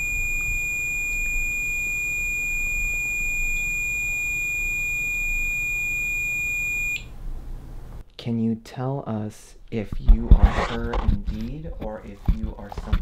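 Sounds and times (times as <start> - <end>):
high-pitched electronic alarm tone: 0.0 - 7.1.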